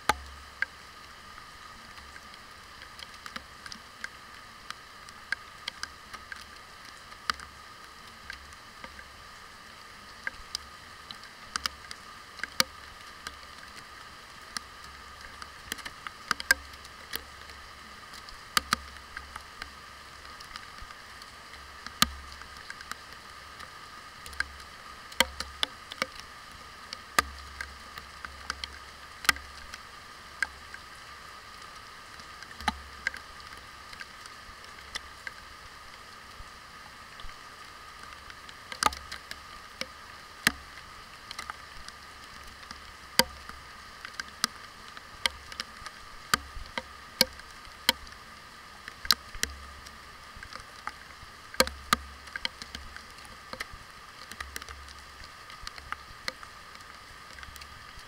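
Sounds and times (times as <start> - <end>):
muffled rain hiss: 0.0 - 58.0
raindrops tapping on case: 51.6 - 52.9.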